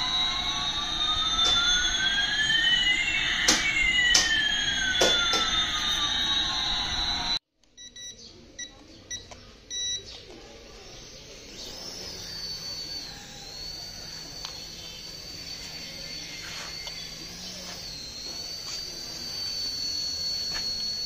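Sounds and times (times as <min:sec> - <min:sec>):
toy helicopter rotor motor whine: 0:00.0 - 0:07.4, 0:10.0 - 0:21.0
toy jet sound effect: 0:00.0 - 0:07.4, 0:10.5 - 0:21.0
short electronic beeps: 0:05.2 - 0:10.1.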